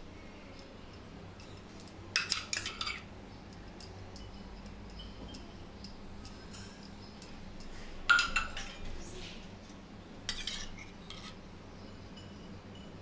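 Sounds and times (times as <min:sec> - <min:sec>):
spoon clinking against steel bowl: 0:00.6 - 0:08.9, 0:12.2 - 0:13.0.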